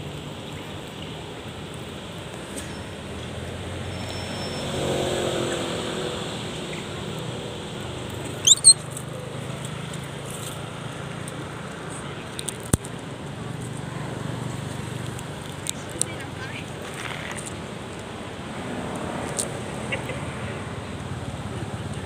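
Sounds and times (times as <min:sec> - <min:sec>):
macaque squeaks: 0:08.4 - 0:08.9.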